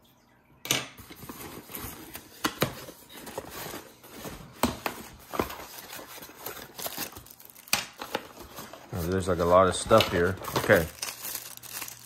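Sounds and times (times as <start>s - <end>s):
plastic packaging rustling: 1.0s - 12.0s
packaging knocks and clicks: 9.8s - 12.0s.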